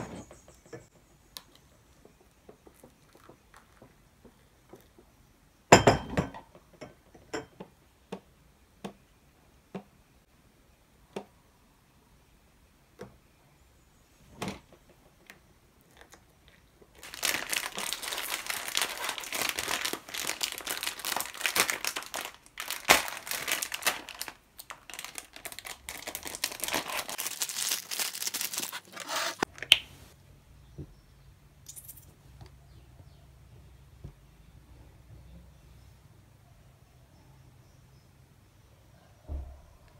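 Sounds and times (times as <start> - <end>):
plastic snack packet crinkling: 16.0 - 29.8.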